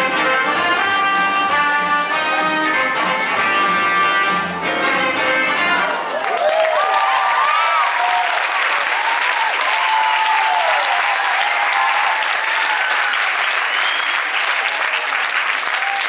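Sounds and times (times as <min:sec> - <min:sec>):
audience applauding: 0:05.7 - 0:16.0
audience cheering and whooping: 0:05.8 - 0:16.0.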